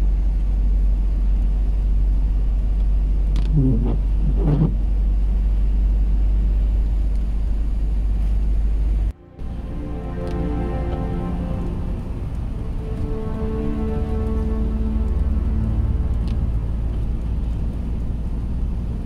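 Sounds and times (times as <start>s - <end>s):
car engine and tyres rumbling: 0.0s - 19.0s
brief rising and falling tones: 9.2s - 18.0s.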